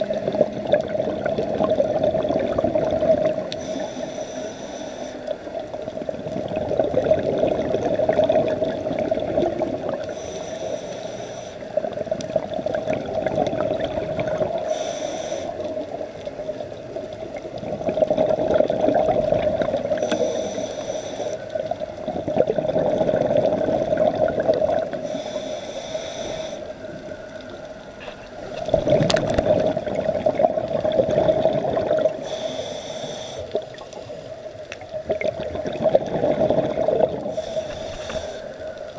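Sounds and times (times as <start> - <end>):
exhaled bubbles rushing: 0.0 - 3.6, 5.9 - 10.1, 11.8 - 14.7, 16.0 - 20.0, 21.4 - 25.0, 26.9 - 32.2, 34.8 - 38.8
hissing regulator inhalations: 3.6 - 5.5, 10.0 - 11.8, 14.6 - 15.8, 20.0 - 21.6, 24.9 - 27.0, 32.1 - 33.7, 37.3 - 38.9.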